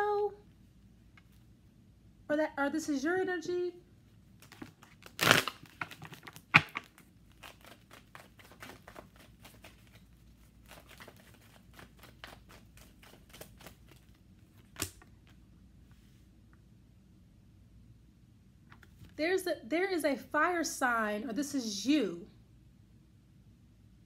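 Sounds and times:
cards snapping: 4.4s - 15.2s
cards flicking and rustling: 4.4s - 15.4s.

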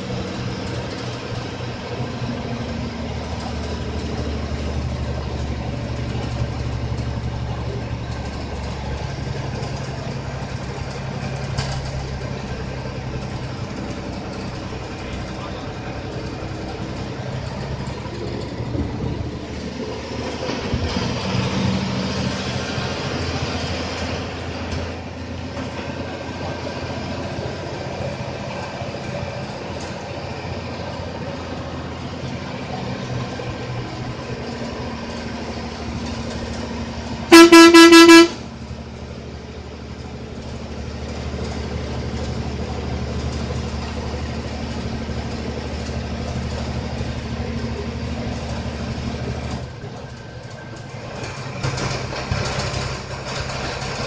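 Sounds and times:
bus engine running: 0.0s - 54.0s
horn blast: 37.3s - 38.4s.

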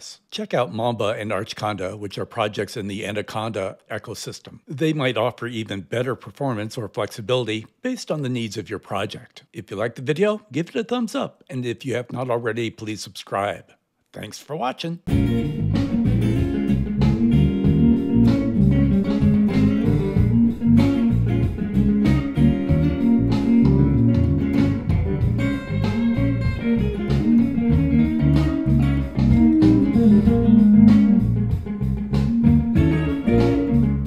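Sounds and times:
guitar-led music with steady beat: 15.1s - 34.0s.

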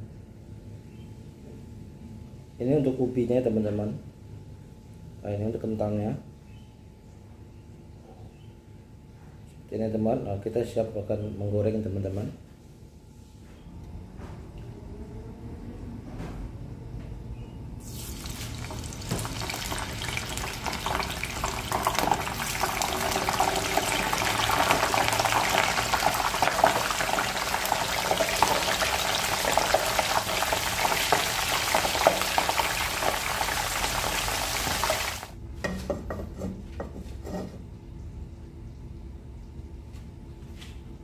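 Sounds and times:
shredded potato deep-frying in oil: 17.8s - 35.4s.

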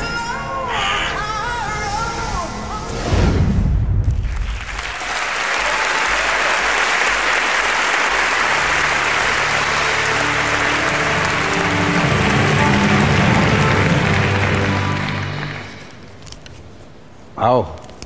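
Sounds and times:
music: 0.0s - 3.1s, 7.1s - 16.1s
large audience applauding: 4.2s - 16.2s.

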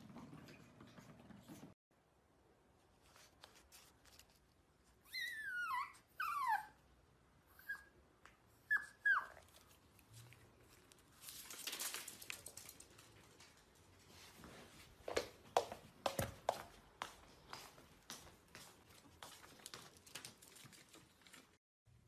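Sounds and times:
dog whining and whimpering: 5.0s - 6.8s, 7.5s - 8.0s, 8.6s - 9.6s.

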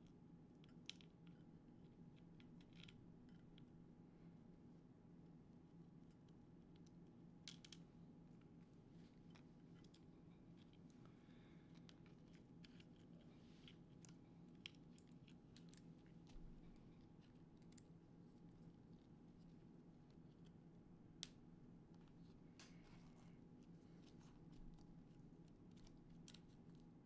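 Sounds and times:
small clicks of parts handled: 0.0s - 3.7s, 6.1s - 11.0s, 11.7s - 18.6s, 23.7s - 26.9s
low room hum: 0.0s - 27.0s.

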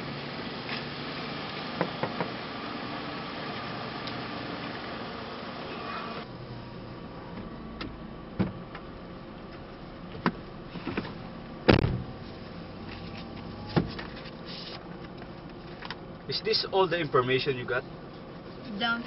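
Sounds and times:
car door shutting with a thud: 7.3s - 8.9s, 10.1s - 12.2s, 13.6s - 14.2s.

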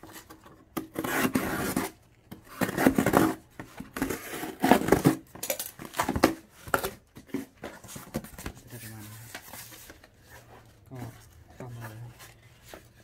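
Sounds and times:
cardboard being cut: 0.9s - 3.4s.

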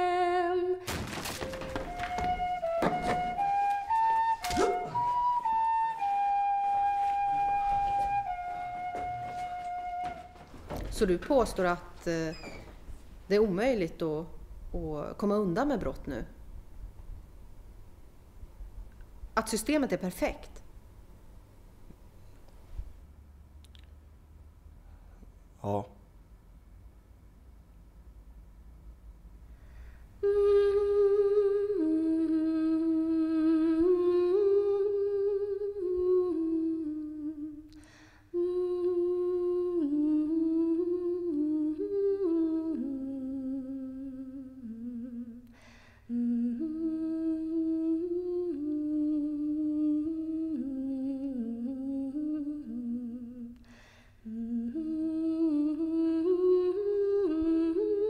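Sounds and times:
person humming a melody: 1.8s - 10.4s, 30.2s - 45.5s, 46.1s - 53.6s, 54.2s - 58.0s.

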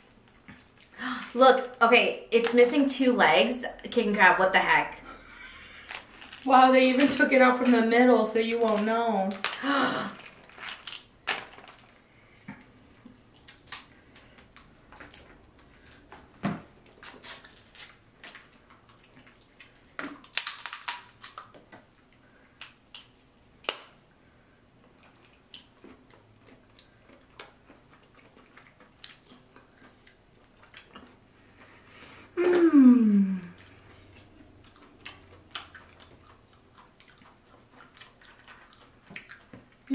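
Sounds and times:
shellfish shells cracking: 8.5s - 12.0s, 13.1s - 16.3s, 19.6s - 21.9s, 22.6s - 24.0s.

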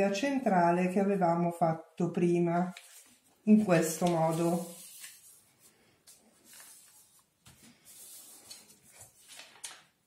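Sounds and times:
paper rustling and scraping: 2.7s - 10.0s.

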